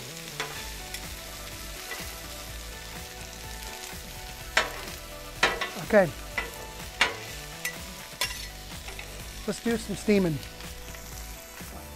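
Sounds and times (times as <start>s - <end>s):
vegetables sizzling on griddle: 0.0s - 11.9s
metal spatulas scraping steel: 4.6s - 9.1s.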